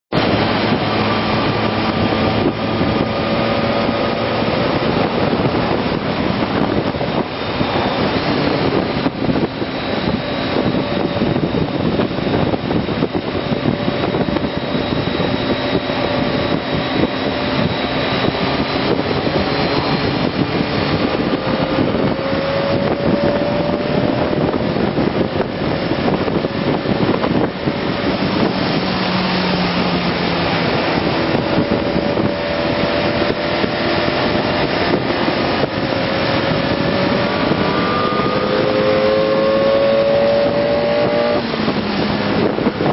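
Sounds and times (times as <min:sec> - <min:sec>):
motorcycle engine accelerating: 0:00.1 - 0:42.9
wind rush on microphone: 0:00.1 - 0:42.9.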